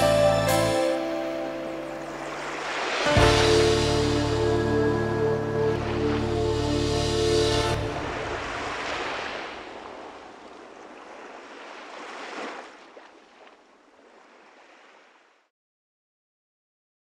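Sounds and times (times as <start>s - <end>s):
sea waves washing: 0.8s - 15.4s.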